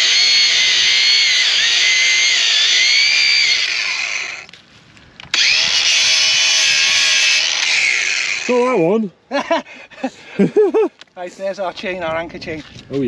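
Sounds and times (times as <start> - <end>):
angle grinder cutting rope: 0.0 - 4.5, 5.3 - 8.8.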